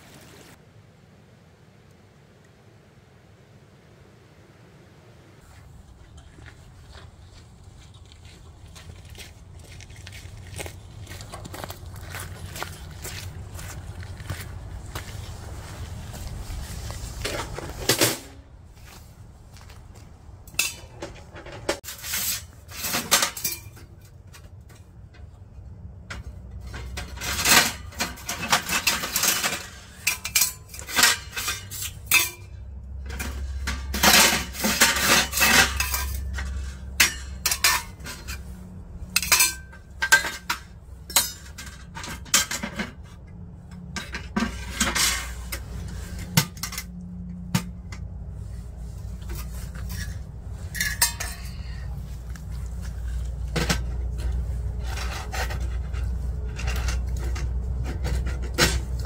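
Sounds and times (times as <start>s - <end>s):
metal stove pipes clanking: 20.5s - 48.3s, 49.1s - 59.0s.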